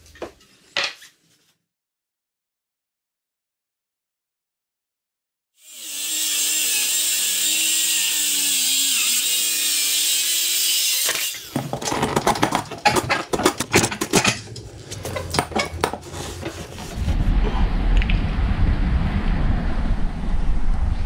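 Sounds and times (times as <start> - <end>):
circular saw cutting wood: 5.6 - 11.7
router plane scraping wood: 14.9 - 17.2.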